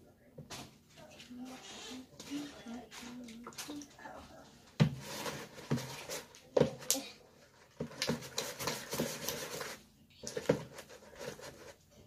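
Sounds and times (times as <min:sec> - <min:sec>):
slime rubbing against plastic bowl: 0:07.5 - 0:11.8.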